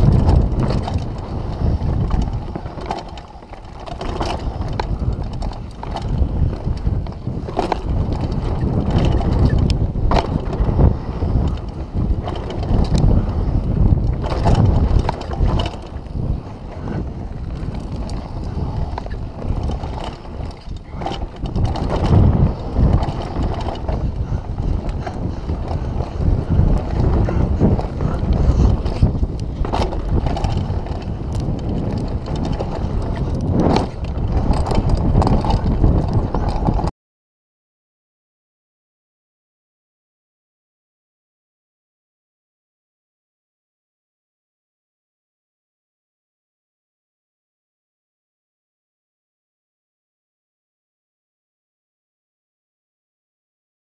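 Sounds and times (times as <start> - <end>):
bike rattling over bumps: 0.0 - 36.9
bike tyres rolling on dirt: 0.0 - 36.9
wind buffeting microphone: 0.0 - 36.9.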